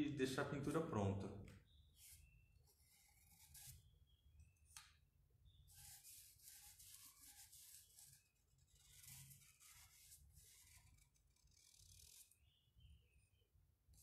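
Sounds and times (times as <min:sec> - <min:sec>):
paintbrush scrubbing on wood: 0:05.7 - 0:10.8.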